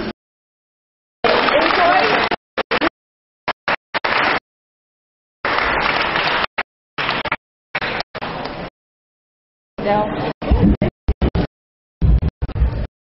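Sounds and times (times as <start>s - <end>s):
audience applause: 1.2s - 2.9s, 3.5s - 4.4s, 5.4s - 8.1s.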